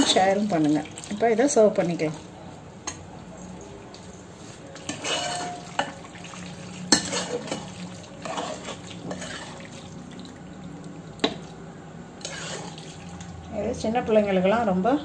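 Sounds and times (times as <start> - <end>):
spoon scraping a pressure cooker: 4.8 - 6.0, 6.9 - 9.6, 12.2 - 12.8.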